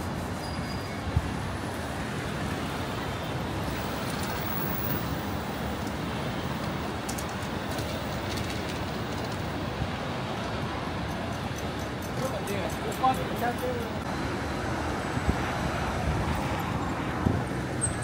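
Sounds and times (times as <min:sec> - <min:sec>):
city traffic rumble: 0:00.0 - 0:18.0.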